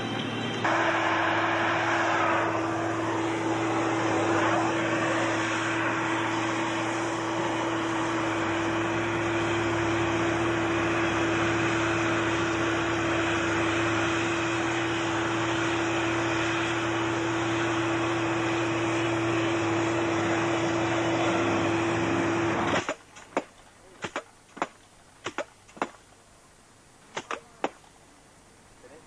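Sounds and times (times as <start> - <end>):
steady hum: 0.0 - 29.0
cutting torch hissing: 0.6 - 22.8.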